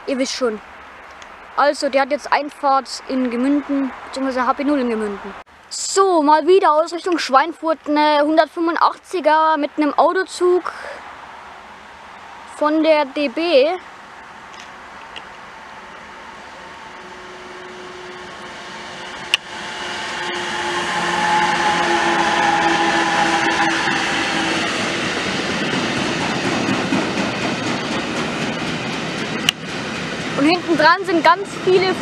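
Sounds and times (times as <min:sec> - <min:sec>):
electric locomotive humming: 0:13.8 - 0:32.0.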